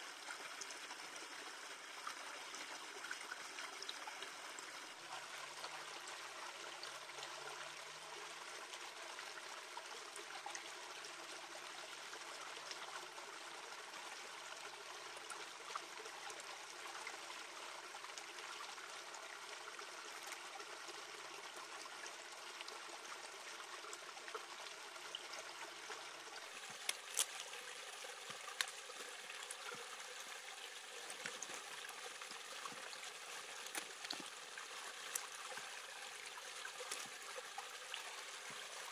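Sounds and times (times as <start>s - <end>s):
stream trickling over rocks: 0.0s - 38.9s
leaves crackling as folded: 26.5s - 27.6s, 33.5s - 34.3s, 36.8s - 37.2s.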